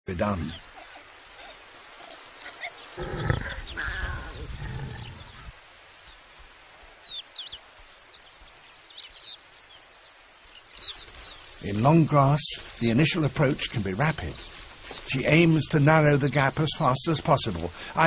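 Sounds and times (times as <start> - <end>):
faint bird chirps: 0.4 - 6.2
warthogs grunting: 3.0 - 5.5.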